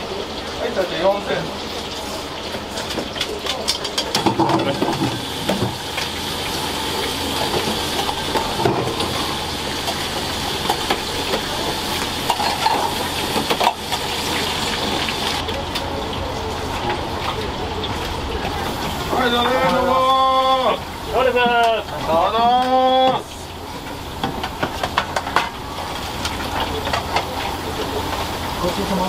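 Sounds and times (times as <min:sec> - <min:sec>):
frying hiss: 0:00.0 - 0:29.0
clatter of bowls and utensils: 0:02.8 - 0:06.2, 0:12.2 - 0:15.1, 0:24.2 - 0:29.0.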